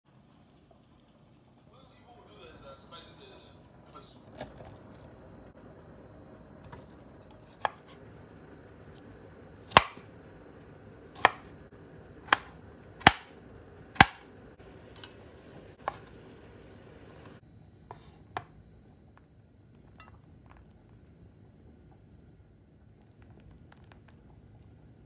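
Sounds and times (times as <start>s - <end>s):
knife strikes on wooden board: 12.3s - 13.3s, 14.0s - 14.2s.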